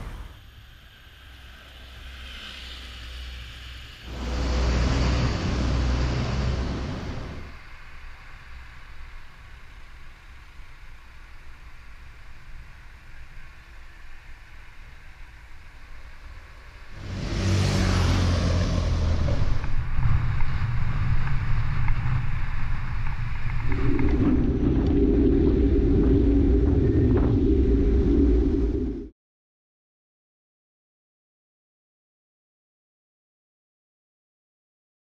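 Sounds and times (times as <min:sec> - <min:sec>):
steady low hum: 0:00.0 - 0:29.1
traffic rumble: 0:04.0 - 0:09.8, 0:14.9 - 0:29.1
wind rush on microphone: 0:17.0 - 0:29.1.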